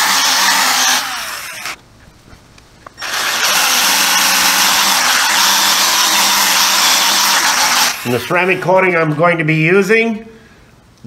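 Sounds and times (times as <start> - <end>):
polisher whirring: 0.0 - 1.8, 3.0 - 8.3.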